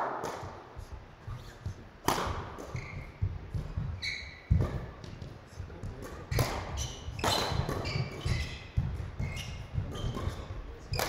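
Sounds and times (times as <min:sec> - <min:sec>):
racket striking shuttlecock: 0:00.0 - 0:00.7, 0:02.0 - 0:05.3, 0:05.9 - 0:11.0
footsteps thudding: 0:00.0 - 0:10.8
shoes squeaking on court floor: 0:01.2 - 0:11.0.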